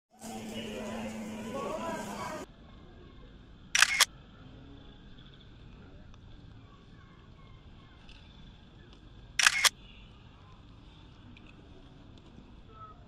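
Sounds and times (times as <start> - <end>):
faint outdoor background noise: 0.1 - 13.0
camera shutter clicking: 3.8 - 4.1, 9.4 - 9.7.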